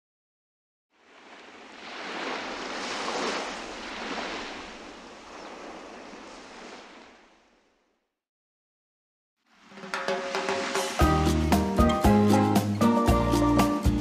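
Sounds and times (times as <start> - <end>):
ocean wave rushing: 1.0 - 7.6, 9.5 - 13.2.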